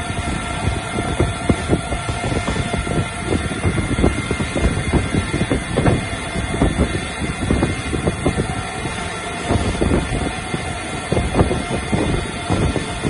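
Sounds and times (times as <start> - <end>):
lathe machine hum: 0.0 - 13.0.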